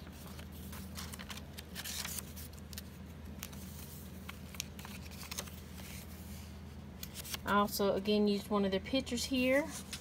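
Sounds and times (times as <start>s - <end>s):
paper pages turning: 0.0s - 6.4s, 7.0s - 7.5s
low steady hum: 0.0s - 10.0s.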